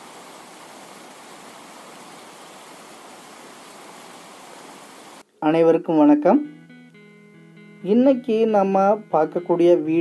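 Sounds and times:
water rushing: 0.0 - 5.2.

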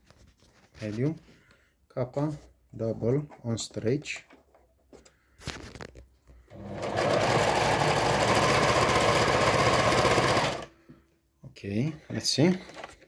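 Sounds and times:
sewing machine sewing: 6.5 - 10.7.

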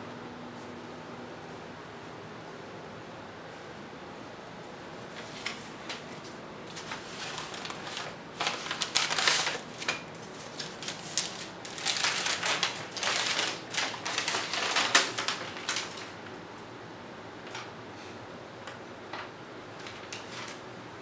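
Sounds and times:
paper map rustling and crinkling: 4.7 - 16.4, 19.1 - 20.7.

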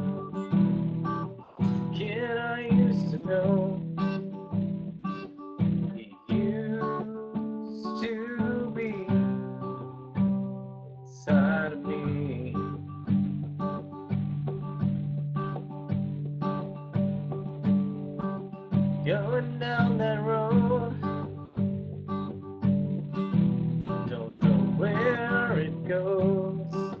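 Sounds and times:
acoustic guitar strumming: 0.0 - 27.0
man singing long notes: 24.1 - 27.0.

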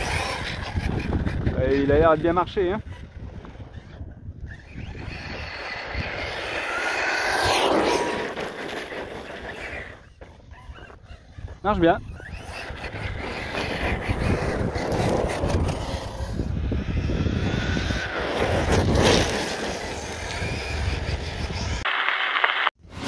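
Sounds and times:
wind rumble on microphone: 0.0 - 21.8
electric motor whining: 0.0 - 22.7
tyres rolling and scraping: 4.8 - 11.6.

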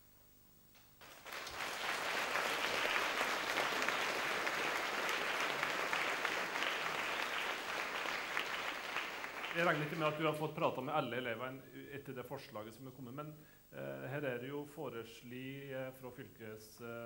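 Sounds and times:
audience applauding: 1.0 - 10.4.

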